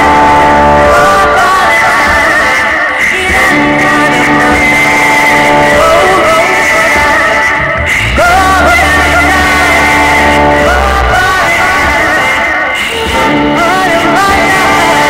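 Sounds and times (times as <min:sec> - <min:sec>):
electric guitar: 0:00.0 - 0:15.0
woman singing: 0:00.0 - 0:15.0
deep low note: 0:07.6 - 0:11.7.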